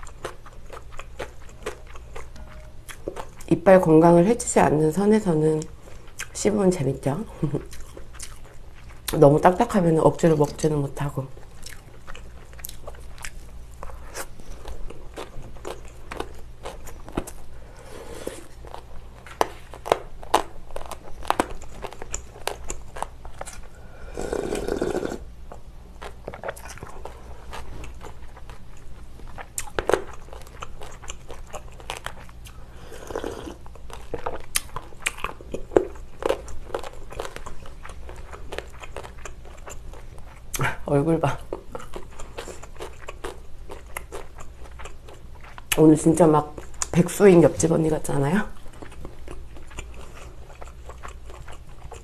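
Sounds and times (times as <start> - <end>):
crunchy chewing: 0.0 - 3.5, 7.4 - 9.2, 11.4 - 40.7, 41.5 - 45.8, 48.5 - 52.0
slurping noodles and broth: 17.8 - 18.6, 23.9 - 25.3, 32.8 - 33.6.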